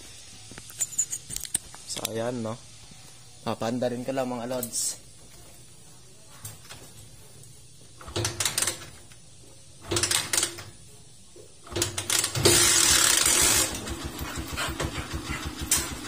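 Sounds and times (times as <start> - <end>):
motorcycle engine kick-started: 11.6 - 16.0.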